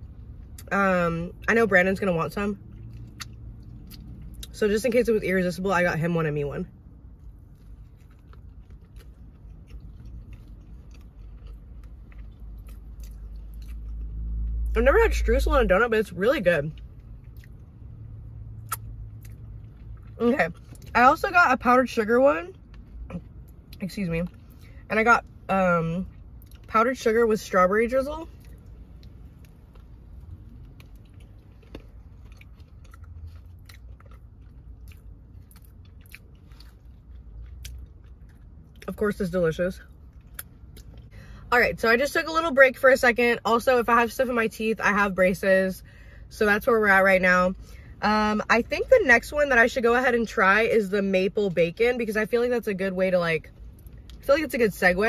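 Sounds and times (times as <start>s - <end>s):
low steady hum: 0.0s - 55.0s
person chewing: 2.7s - 4.6s, 7.2s - 14.6s, 16.7s - 17.7s, 18.6s - 20.9s, 28.3s - 38.9s.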